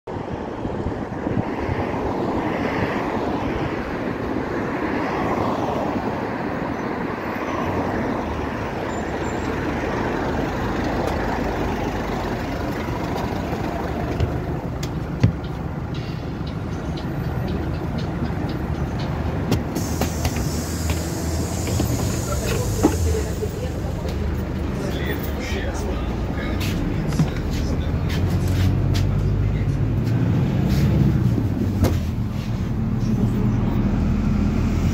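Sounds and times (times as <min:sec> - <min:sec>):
road traffic passing: 0:00.1 - 0:34.9
bus engine idling: 0:07.8 - 0:34.9
bright hiss: 0:19.8 - 0:24.0.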